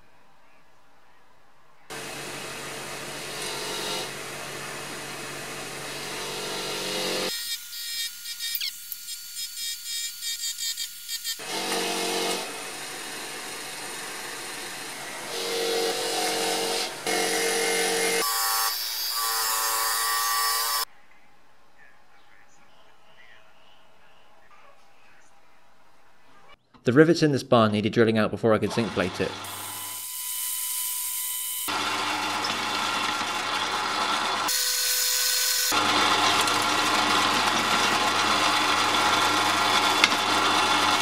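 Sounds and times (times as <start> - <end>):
bench grinder running: 1.9 - 20.9, 28.7 - 41.0.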